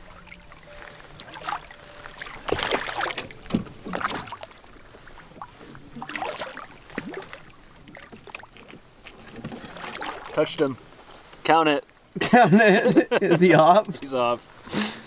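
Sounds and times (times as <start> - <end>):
fish splashing at surface: 0.2 - 10.4.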